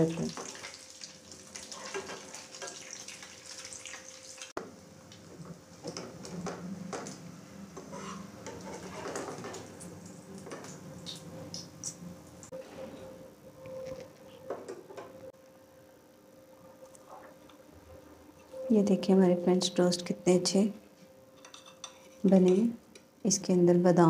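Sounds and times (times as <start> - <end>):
toast sizzling in oil: 0.0 - 5.3
metal spatula scraping pan: 7.8 - 9.6.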